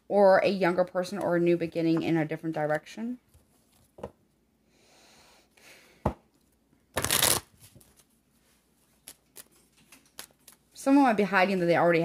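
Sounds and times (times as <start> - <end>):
cards sliding: 7.0 - 8.0.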